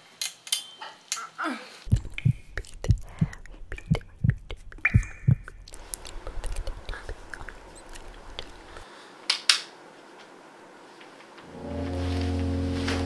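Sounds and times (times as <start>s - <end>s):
dull thumps: 1.9s - 5.8s
duvet rustling: 11.5s - 13.0s.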